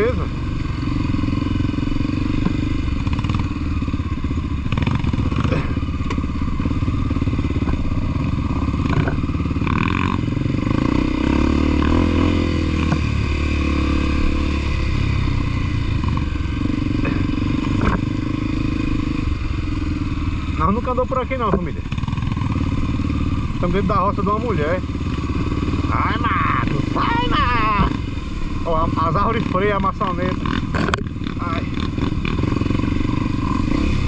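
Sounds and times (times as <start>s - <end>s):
motorcycle engine running: 0.0s - 34.0s
knocks and clatter: 8.8s - 10.0s.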